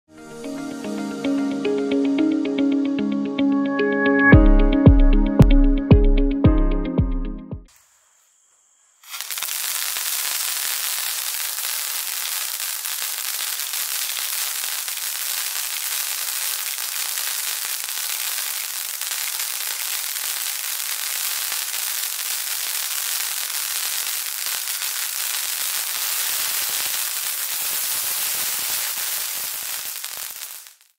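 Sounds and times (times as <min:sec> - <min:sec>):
firework crackling and hissing: 0:07.7 - 0:30.9.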